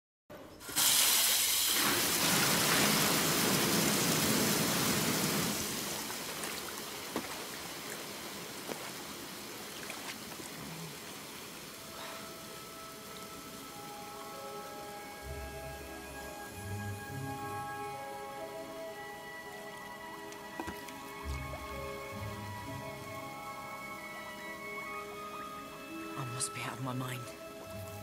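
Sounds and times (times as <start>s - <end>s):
water gushing from taps into tub: 0.8s - 11.8s.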